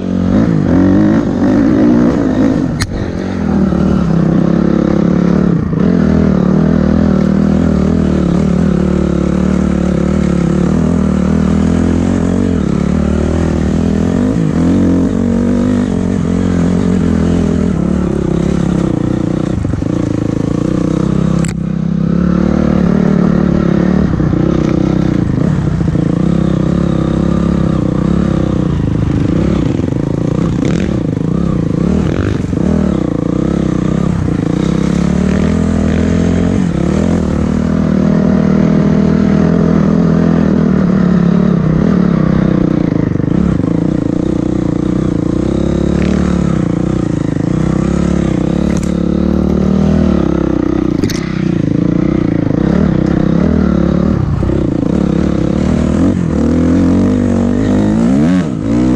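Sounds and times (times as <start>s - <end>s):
dirt bike engine revving: 0.0s - 58.9s
bike clicks and clatter: 51.0s - 51.5s.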